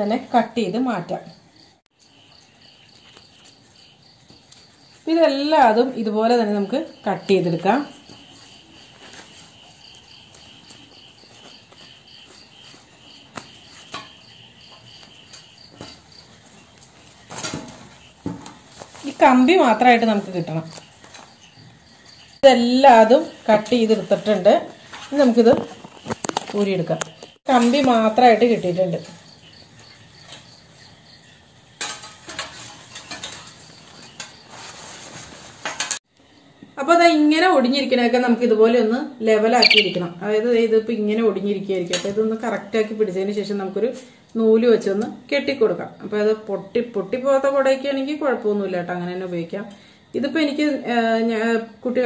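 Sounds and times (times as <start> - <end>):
insect trill: 1.3 - 34.8, 39.5 - 40.3
umbrella fabric rustling: 15.0 - 21.4, 32.4 - 36.0
metal ribs clinking and scraping: 31.8 - 34.5.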